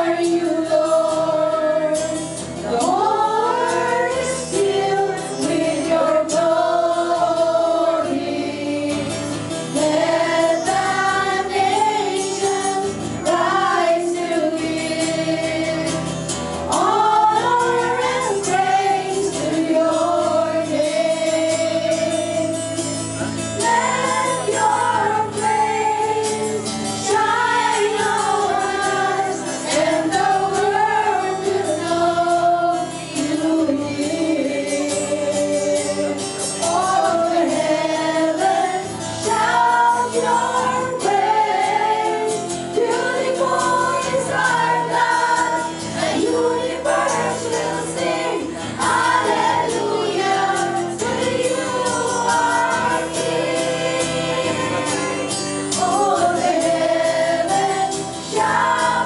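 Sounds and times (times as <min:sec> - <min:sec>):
women singing worship song: 0:00.0 - 0:59.0.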